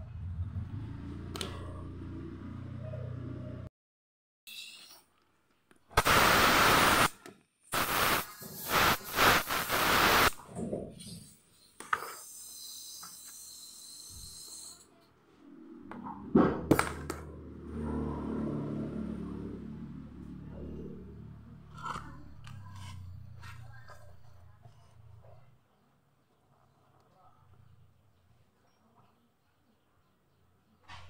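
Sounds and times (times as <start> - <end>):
compressed air hissing: 6.0 - 7.1, 7.7 - 10.4.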